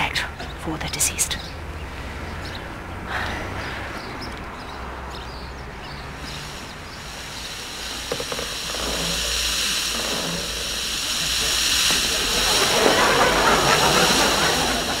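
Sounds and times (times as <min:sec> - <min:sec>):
hiss: 0:05.8 - 0:15.0.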